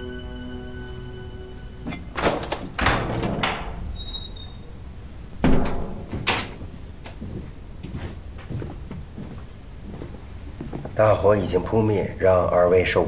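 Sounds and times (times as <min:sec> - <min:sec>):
door squeak: 0:01.8 - 0:04.8
cell door clanking and rattling: 0:01.9 - 0:04.6, 0:05.4 - 0:06.7.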